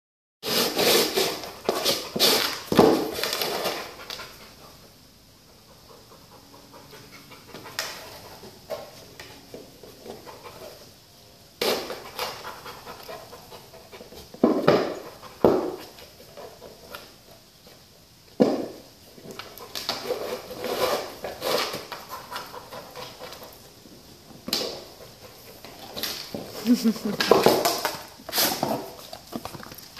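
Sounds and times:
plastic disc scraping on concrete: 0.4s - 3.9s, 19.8s - 23.4s
dog panting: 3.9s - 8.5s.

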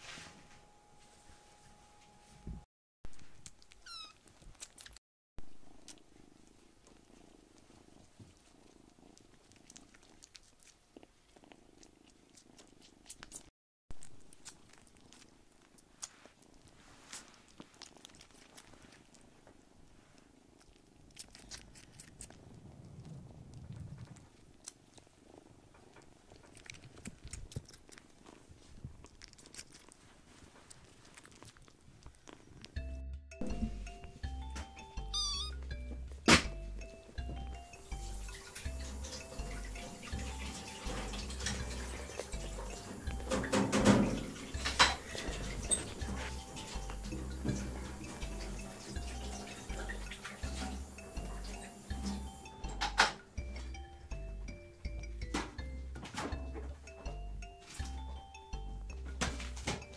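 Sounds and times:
kittens purring faintly: 2.2s - 59.9s
small clicks and rustles: 5.7s - 32.8s.

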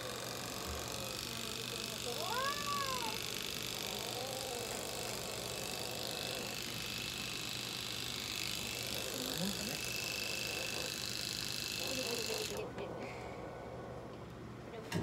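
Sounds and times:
electric pet clipper humming: 0.0s - 12.7s
cat meowing: 2.3s - 3.2s.

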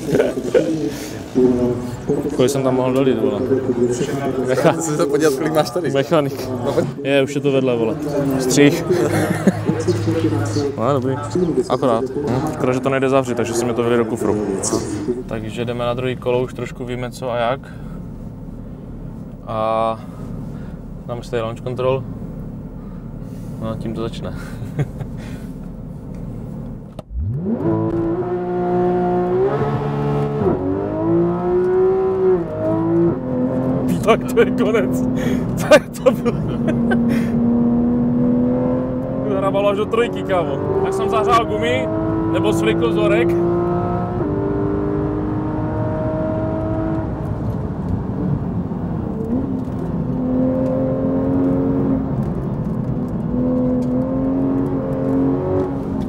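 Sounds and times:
sports car engine revving: 0.0s - 5.4s, 7.8s - 23.6s, 24.6s - 56.0s.

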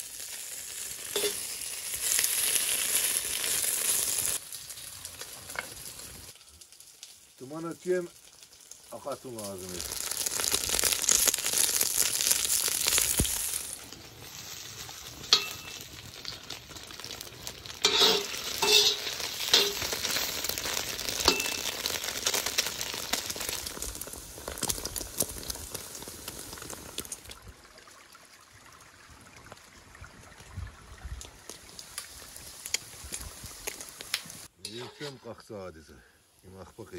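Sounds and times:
fat sizzling in a wok: 0.0s - 27.3s, 32.1s - 35.3s
metal spoon scraping and stirring: 1.2s - 1.4s, 17.8s - 19.9s, 34.6s - 35.2s.

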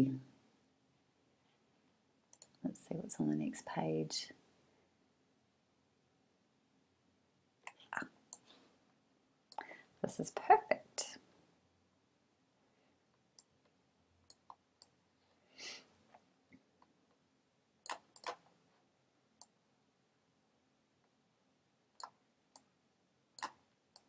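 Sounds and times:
faint computer mouse clicks: 2.3s - 2.6s, 17.8s - 18.4s.

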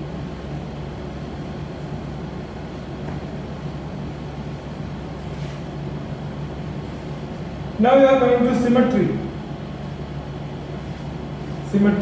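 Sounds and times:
low electrical hum: 0.0s - 12.0s
duster wiping whiteboard: 5.2s - 5.7s.

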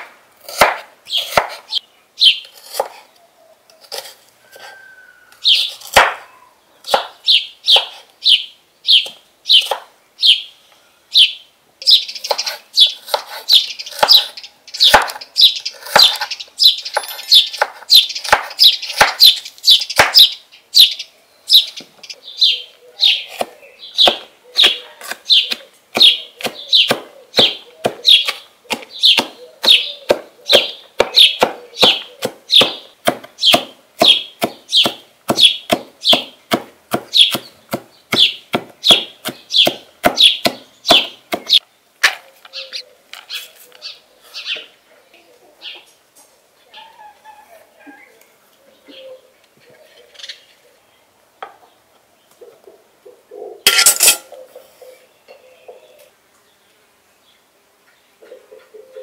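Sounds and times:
knife cutting onion on wooden board: 0.4s - 1.8s, 2.5s - 3.0s, 3.8s - 4.7s, 5.5s - 6.2s, 7.8s - 8.1s, 12.2s - 16.3s, 16.9s - 19.4s, 23.3s - 41.6s.

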